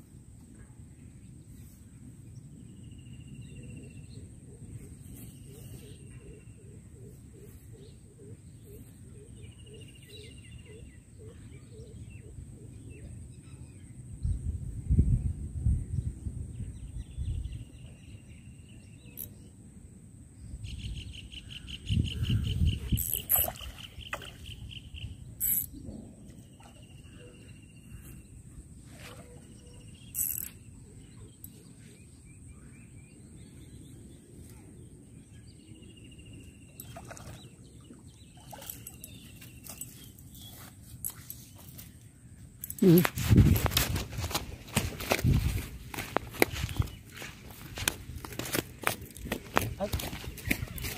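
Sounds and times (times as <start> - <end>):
wind rumble on microphone: 13.8 - 18.5, 20.3 - 27.2, 42.8 - 50.9
birds calling in short trills: 21.2 - 25.9, 29.0 - 31.9.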